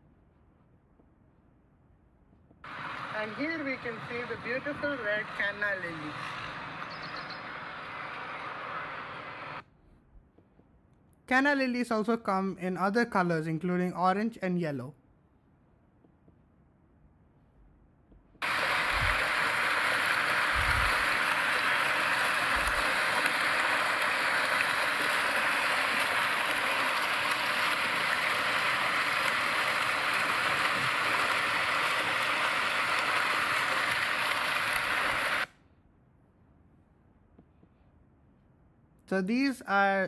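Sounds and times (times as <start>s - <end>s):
fountain water splashing: 2.6s - 9.6s, 18.4s - 35.5s.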